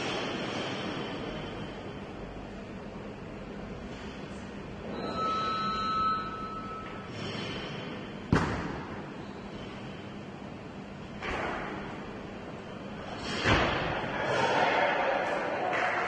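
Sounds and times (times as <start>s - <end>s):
sports hall murmur: 0.0s - 16.0s.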